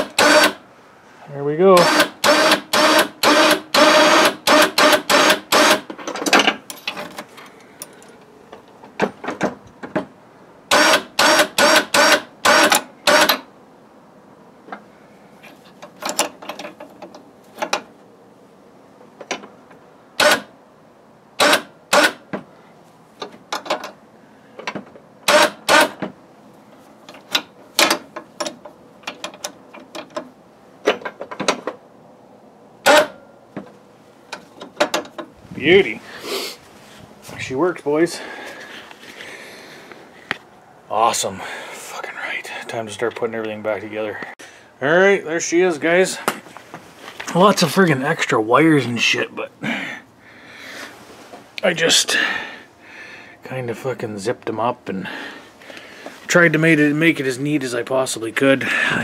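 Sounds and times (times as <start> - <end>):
electric winch reeling in: 0.0 - 0.6, 1.8 - 5.8, 10.7 - 13.4.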